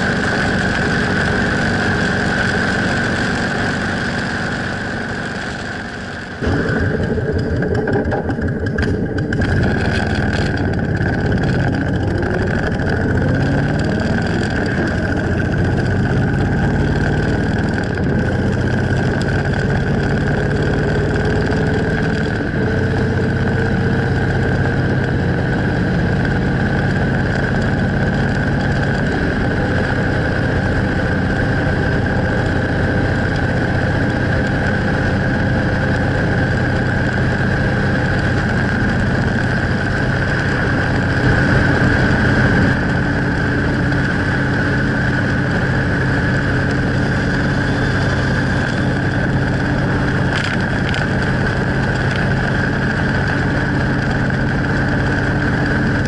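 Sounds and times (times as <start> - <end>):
motorcycle engine running: 0.0 - 56.0
wind rushing over microphone: 28.4 - 56.0.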